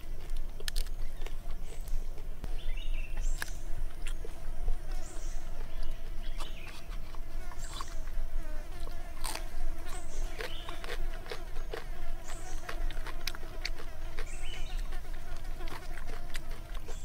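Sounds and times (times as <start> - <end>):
low buzzing hum: 0.0 - 17.0
person chewing with wet smacks: 3.2 - 4.4, 5.6 - 8.2, 8.8 - 17.0.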